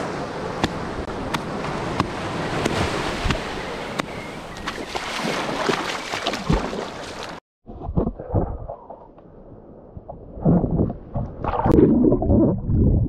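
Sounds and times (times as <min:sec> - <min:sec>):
small waves washing: 0:00.0 - 0:07.4
swim fins slapping water: 0:04.6 - 0:07.4.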